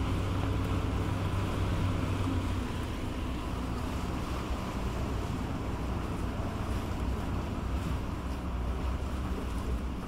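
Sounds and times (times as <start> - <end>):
boat diesel engines humming: 0.0 - 10.0
propeller wash churning water: 0.0 - 10.0.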